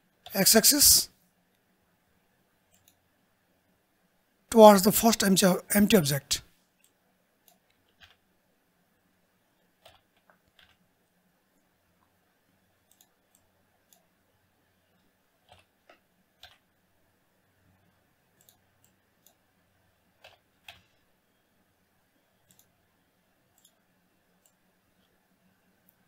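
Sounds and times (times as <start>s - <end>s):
keyboard and mouse clicking: 2.7s - 3.0s, 6.8s - 8.2s, 9.8s - 10.8s, 12.8s - 14.1s, 15.4s - 16.7s, 18.4s - 19.4s, 20.2s - 21.0s, 22.4s - 22.7s, 23.5s - 23.8s.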